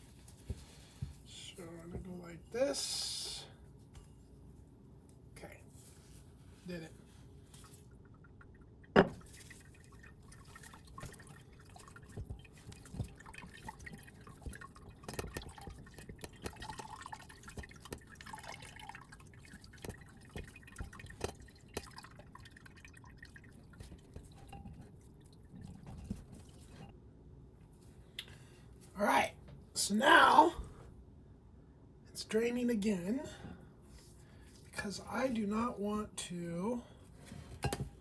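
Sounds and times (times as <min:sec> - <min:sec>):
liquid dripping into jar: 0:07.8 - 0:26.9.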